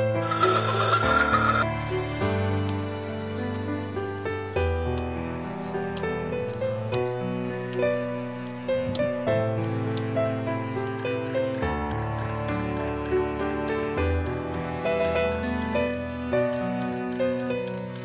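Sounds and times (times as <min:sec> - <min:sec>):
soft piano music: 0:00.0 - 0:18.0
insect chirping: 0:10.9 - 0:18.0.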